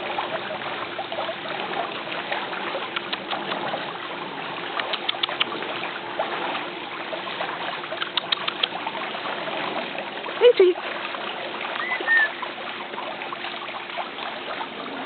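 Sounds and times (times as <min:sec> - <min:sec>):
steady rushing outdoor noise: 0:00.0 - 0:15.0
short sharp clicks: 0:03.0 - 0:03.6, 0:04.8 - 0:05.5, 0:08.0 - 0:08.8.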